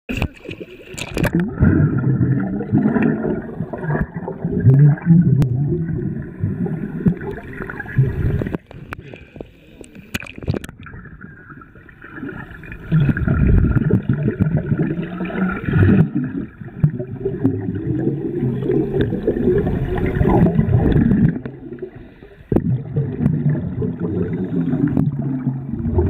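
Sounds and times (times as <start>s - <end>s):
underwater exhaust bubbles gurgling: 0.1s - 26.0s.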